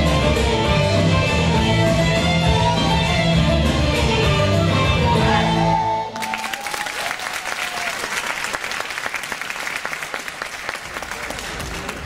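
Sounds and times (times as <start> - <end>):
audience applause: 6.2 - 12.0.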